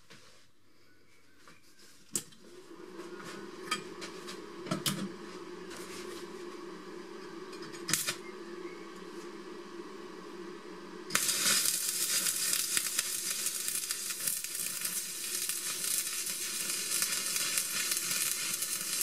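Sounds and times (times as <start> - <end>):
welding machine humming: 2.4 - 19.0
welding arc crackle: 7.7 - 8.2, 11.1 - 19.0
electrode clicking on steel: 11.1 - 19.0.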